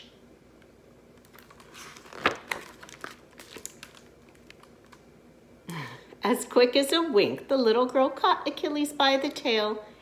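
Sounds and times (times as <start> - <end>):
paper page rustling: 1.2 - 5.0.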